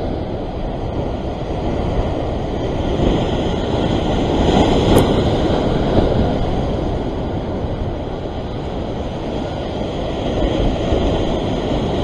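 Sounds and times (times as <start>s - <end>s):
waves breaking against rocks: 0.0s - 12.0s
wind buffeting microphone: 0.0s - 12.0s.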